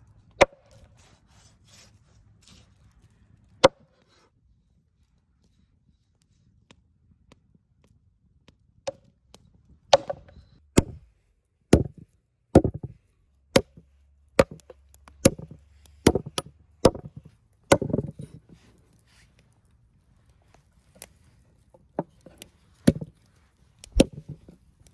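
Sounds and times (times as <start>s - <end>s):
knife chopping on wooden board: 14.4s - 18.2s.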